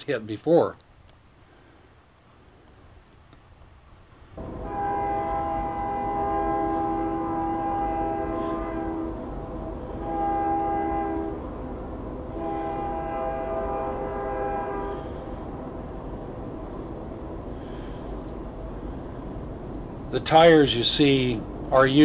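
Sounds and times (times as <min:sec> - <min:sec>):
train horn blasts: 0:04.4 - 0:18.0.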